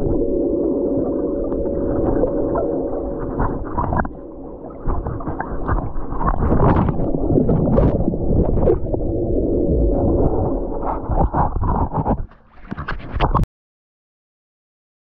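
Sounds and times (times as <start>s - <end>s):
microphone handling noise: 3.2s - 13.5s.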